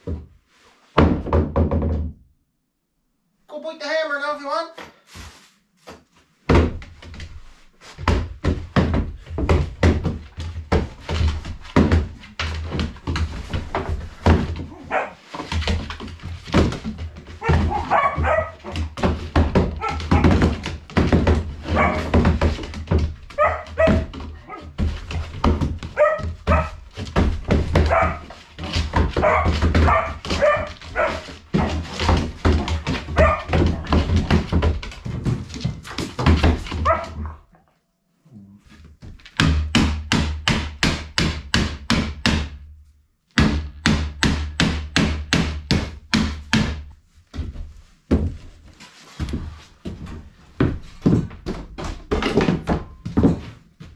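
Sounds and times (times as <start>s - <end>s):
thumps and scrabbling on plywood: 0.0s - 2.2s, 5.1s - 37.5s, 38.7s - 42.6s, 43.4s - 53.9s
dog yipping and barking: 14.7s - 15.2s, 17.4s - 18.7s, 21.7s - 22.1s, 23.4s - 24.7s, 26.0s - 26.8s, 27.9s - 28.2s, 29.2s - 31.2s, 33.2s - 33.6s, 36.8s - 37.4s.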